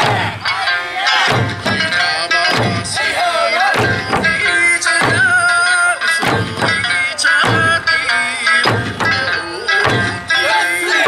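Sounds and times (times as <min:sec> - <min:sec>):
person singing folk melody: 0:00.5 - 0:11.0
barrel drum booming: 0:01.3 - 0:03.0, 0:03.7 - 0:05.5, 0:06.2 - 0:08.0, 0:08.6 - 0:10.3.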